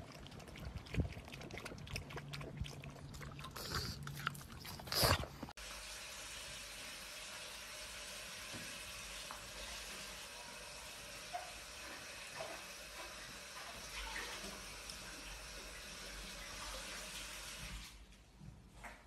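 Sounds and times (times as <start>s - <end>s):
dog splashing in water bowl: 0.0s - 5.4s.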